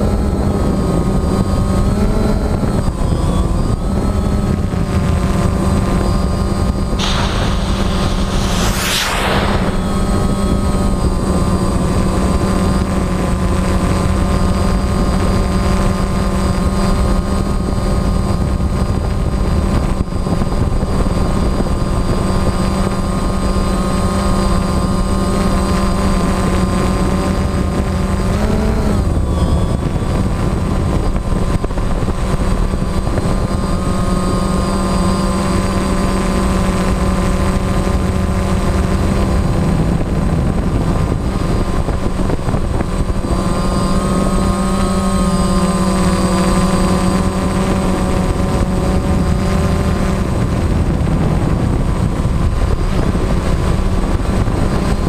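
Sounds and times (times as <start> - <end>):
drone motors and propellers: 0.0 - 55.0.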